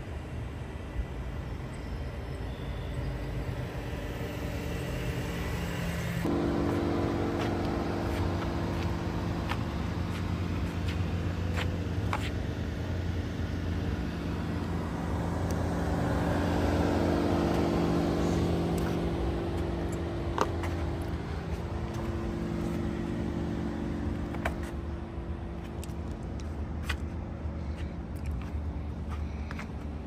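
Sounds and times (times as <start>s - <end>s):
low mechanical hum: 0.0s - 30.0s
vehicle passing: 3.1s - 25.7s.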